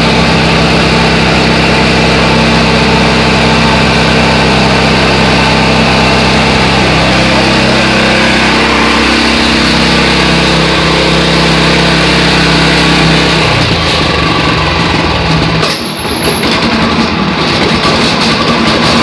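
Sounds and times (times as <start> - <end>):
mower engine running: 0.0 - 19.0.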